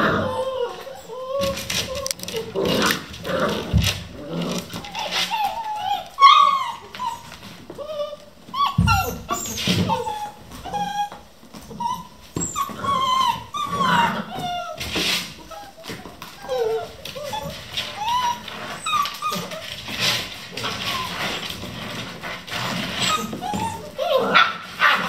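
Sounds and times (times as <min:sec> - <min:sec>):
puppies whining and yipping: 0:00.0 - 0:25.0.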